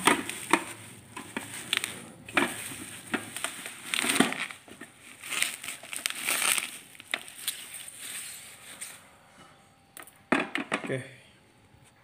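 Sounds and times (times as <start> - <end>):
plastic crackling: 0.0 - 9.0
plastic clicks and knocks: 10.0 - 10.9.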